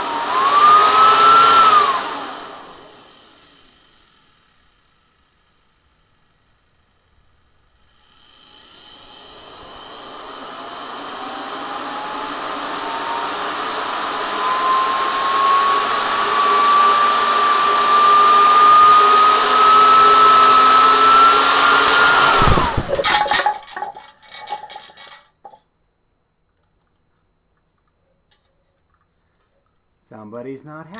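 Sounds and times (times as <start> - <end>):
electric motor whine: 0.0 - 5.8, 7.3 - 23.9
motor breaking apart clattering: 21.1 - 25.6
scattered rattles and clicks: 22.4 - 25.7.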